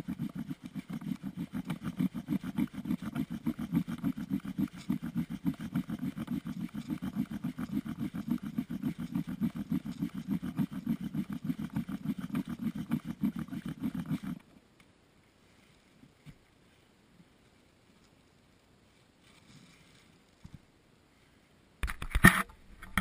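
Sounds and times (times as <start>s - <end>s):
bow drill spindle grinding wood: 0.0s - 14.4s.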